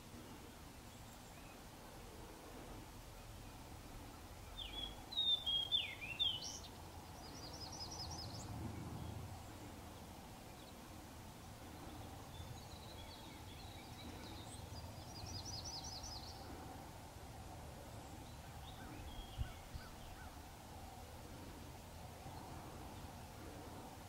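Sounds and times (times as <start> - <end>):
distant birds chirping: 0.0 - 24.0
steady low rumble: 6.7 - 24.0.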